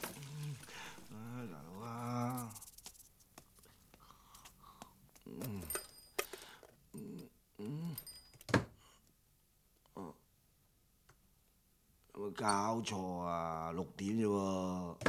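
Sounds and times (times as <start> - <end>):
man groaning sleepily: 0.3 - 2.6, 5.2 - 5.8, 7.0 - 8.1.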